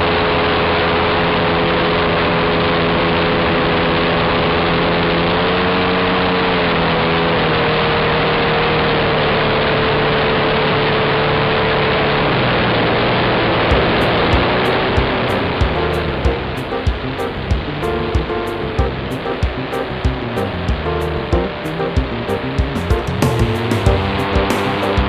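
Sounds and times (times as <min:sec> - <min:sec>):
model aircraft engine: 0:00.0 - 0:16.1
airflow noise: 0:13.7 - 0:25.0
sharp thumps: 0:13.7 - 0:25.0.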